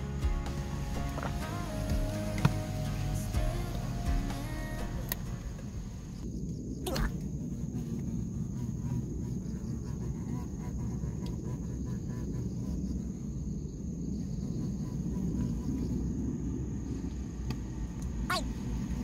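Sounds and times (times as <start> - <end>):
bee buzzing: 0.0 - 6.2, 6.9 - 12.8
low rumble: 0.0 - 10.1.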